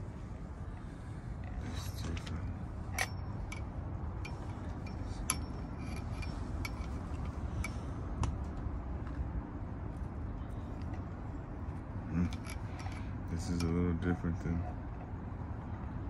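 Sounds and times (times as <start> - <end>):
steady low rumble: 0.0 - 16.0
metallic clinks and clicks: 1.4 - 7.9, 11.7 - 13.8.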